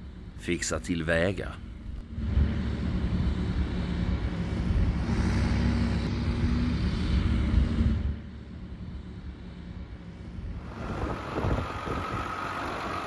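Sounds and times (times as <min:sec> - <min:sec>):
diesel truck engine rumbling: 0:10.5 - 0:13.0.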